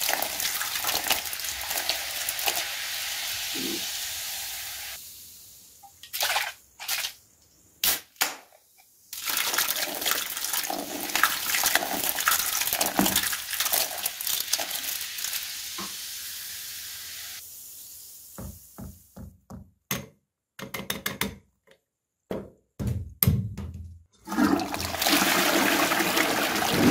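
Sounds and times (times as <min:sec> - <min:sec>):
soda splashing and fizzing: 0:00.0 - 0:07.4, 0:09.1 - 0:18.8, 0:24.2 - 0:26.9.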